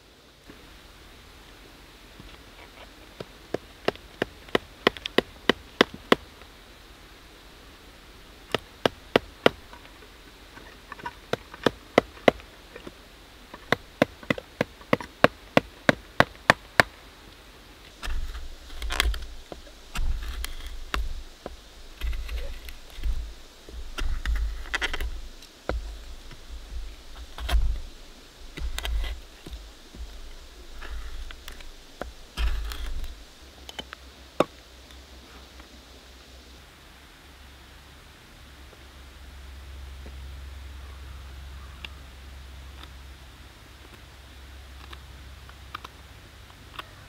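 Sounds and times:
chisel scraping wood: 0:17.9 - 0:33.4
dull low thuds: 0:17.9 - 0:33.4
hand tools knocking wood: 0:18.0 - 0:33.3.

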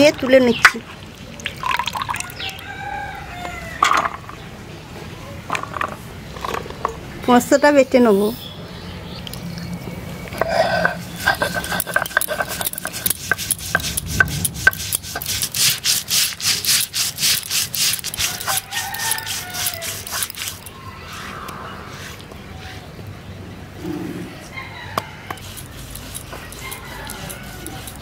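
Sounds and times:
stone grinding rasping scrape: 0:10.4 - 0:21.3, 0:25.3 - 0:28.0.

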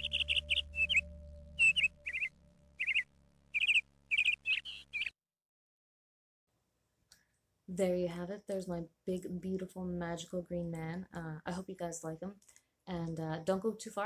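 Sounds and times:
soft sustained drone: 0:00.0 - 0:04.2
bird chirps: 0:00.0 - 0:05.2.

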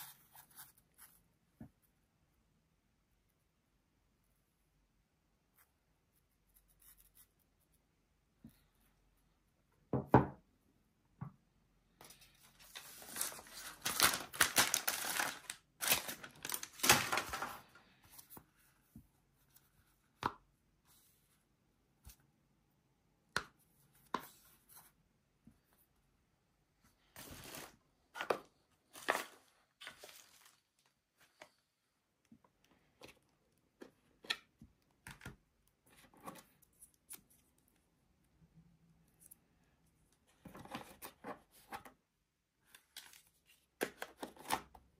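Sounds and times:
cardboard and paper tearing: 0:12.8 - 0:17.4.

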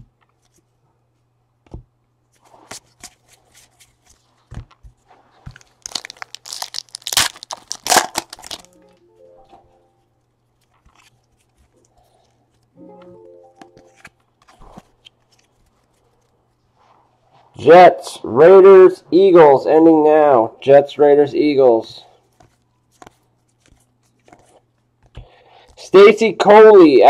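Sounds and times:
foil pack tearing and crinkling: 0:05.6 - 0:08.7
faint music: 0:08.4 - 0:10.4, 0:11.9 - 0:14.8
cards clicking and rustling: 0:10.6 - 0:12.7, 0:13.6 - 0:16.4, 0:22.3 - 0:25.9.

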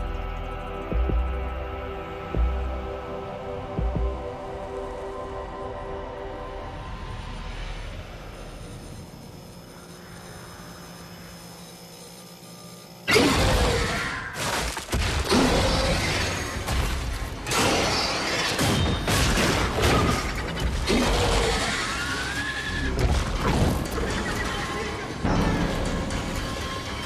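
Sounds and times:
creature screeches: 0:13.1 - 0:14.6, 0:20.9 - 0:23.0.

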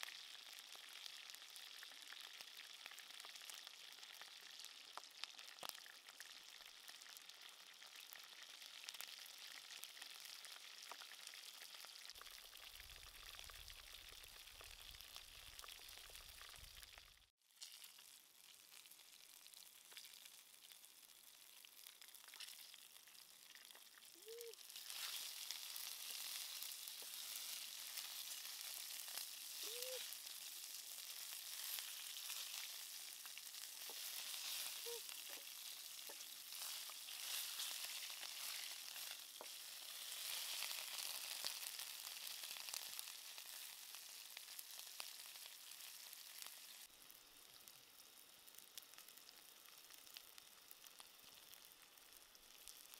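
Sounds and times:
food sizzling in hot oil: 0:00.0 - 0:52.9.

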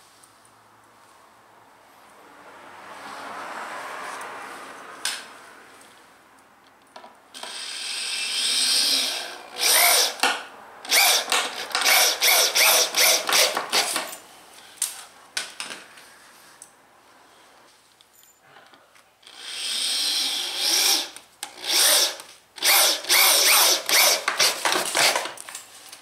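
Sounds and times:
cordless drill driving screw: 0:07.4 - 0:10.3, 0:10.9 - 0:14.0, 0:19.2 - 0:25.3.

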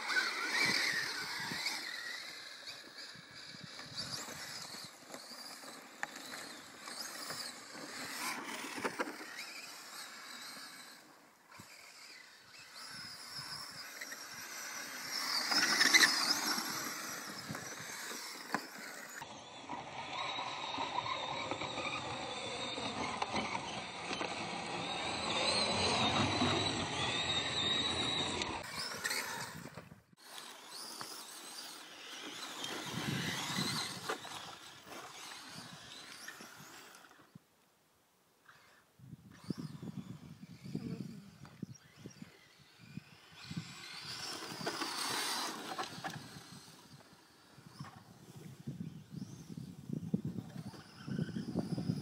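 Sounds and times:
tyres scrabbling on dirt: 0:00.0 - 0:10.9, 0:11.5 - 0:19.2, 0:21.0 - 0:37.2, 0:43.4 - 0:48.0
electric motor whine: 0:00.0 - 0:37.4, 0:38.5 - 0:52.0.

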